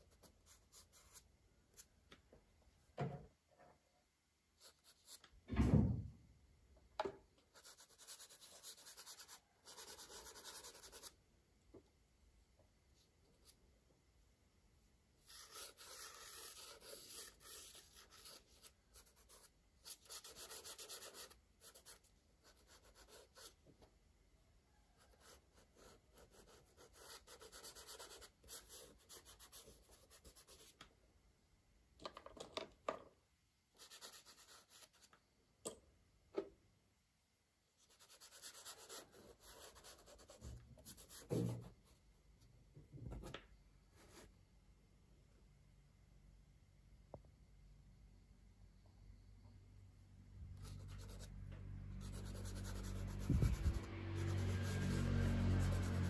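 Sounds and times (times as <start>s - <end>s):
crayon scratching on paper: 7.6s - 11.1s, 15.2s - 23.6s, 25.2s - 30.7s, 52.0s - 56.0s.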